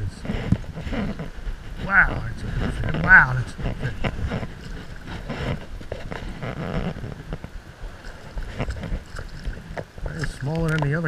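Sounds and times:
wind buffeting microphone: 0.0s - 11.0s
water splashes: 2.5s - 11.0s.

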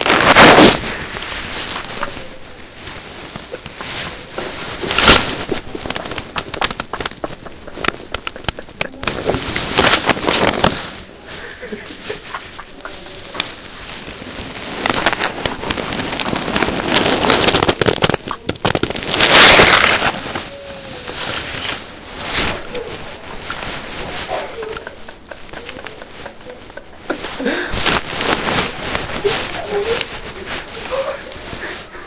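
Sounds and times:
men laughing: 6.7s - 9.0s, 11.3s - 13.5s, 24.4s - 27.8s.

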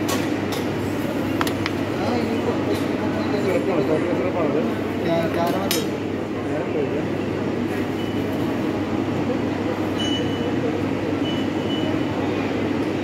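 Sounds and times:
faint short high beeps: 11.2s - 12.1s.

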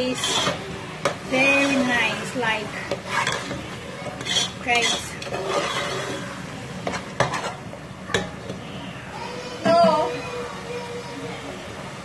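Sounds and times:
spoon scraping saucepan bottom: 0.0s - 0.6s, 2.9s - 7.6s.

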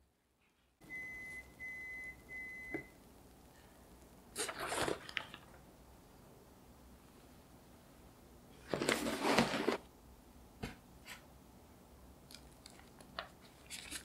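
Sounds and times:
oven timer beeps: 0.8s - 3.0s.

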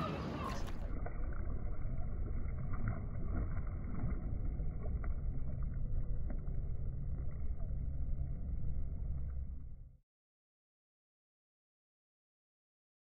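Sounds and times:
water moving: 0.0s - 9.9s.

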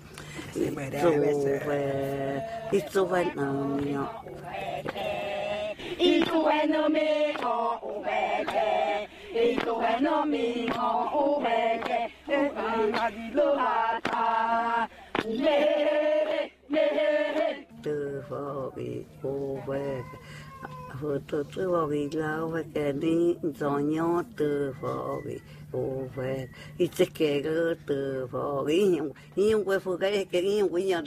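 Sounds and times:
women chanting in unison: 0.5s - 20.4s.

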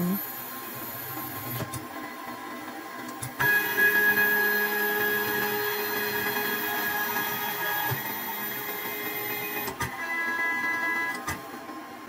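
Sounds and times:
stepper motors whining: 3.1s - 11.3s.

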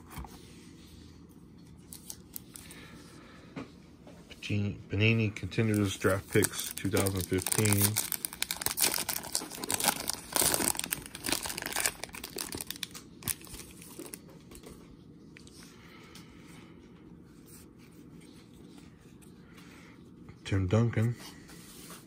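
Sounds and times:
faint handling of cards: 5.2s - 22.0s
foil wrapper tearing and crinkling: 5.7s - 14.2s.

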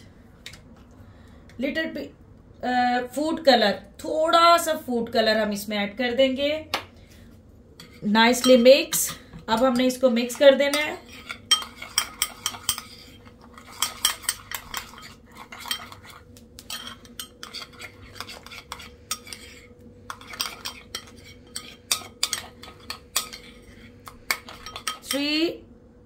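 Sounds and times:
spoon stirring in bowl: 7.8s - 25.3s.

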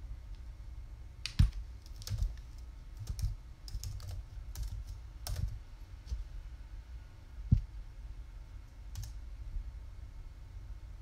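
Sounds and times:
computer keyboard typing: 1.3s - 5.6s, 8.9s - 9.2s.

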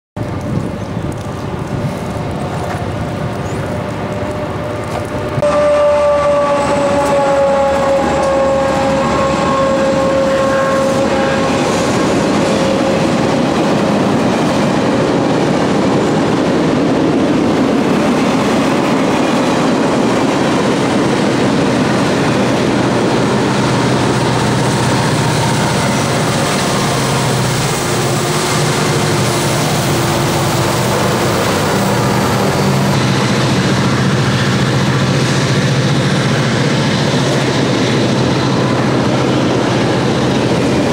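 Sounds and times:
freight train passing: 0.2s - 40.9s
low engine drone: 0.2s - 40.9s
train horn: 4.0s - 13.6s, 20.7s - 40.9s.

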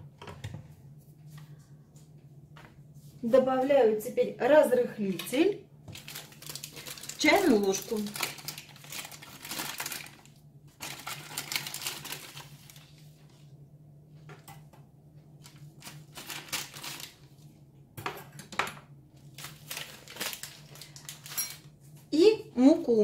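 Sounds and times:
paper packet crinkling: 5.1s - 13.5s, 15.4s - 17.5s, 19.2s - 21.6s.

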